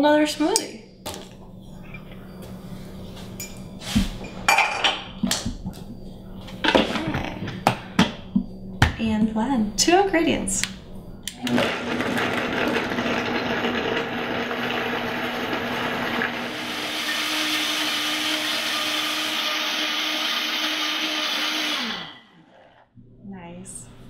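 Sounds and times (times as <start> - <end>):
blender running: 11.3 - 22.8.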